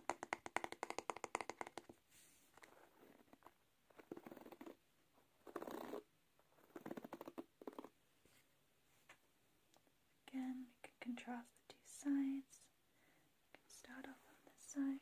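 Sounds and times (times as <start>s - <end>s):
fingernails tapping on wood: 0.0s - 1.9s
fingers rubbing brush bristles: 2.6s - 4.8s, 6.6s - 7.9s.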